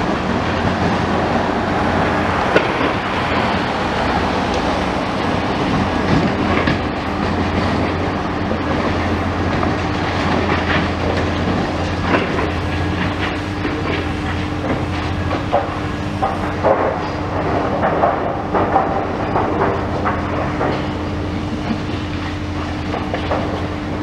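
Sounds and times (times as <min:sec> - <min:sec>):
concrete and steel crunching: 0:00.0 - 0:24.0
excavator diesel engine running: 0:00.0 - 0:24.0.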